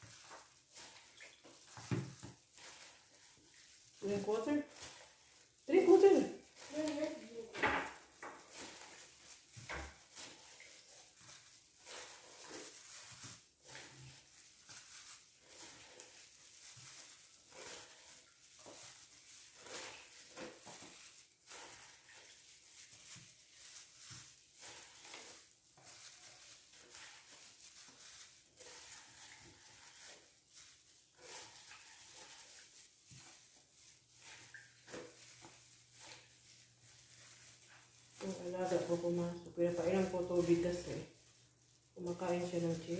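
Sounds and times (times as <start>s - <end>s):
glove rustling: 0.0s - 42.9s
small wet splashes: 31.2s - 38.5s.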